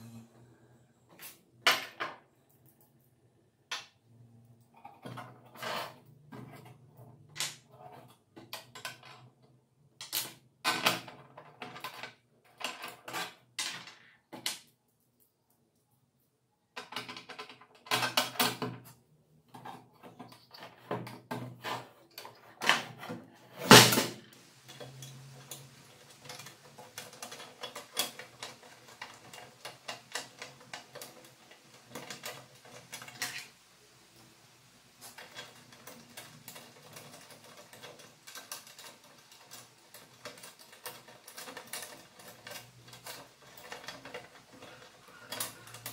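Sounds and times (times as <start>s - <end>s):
small ticks and rattles: 24.4s - 45.9s.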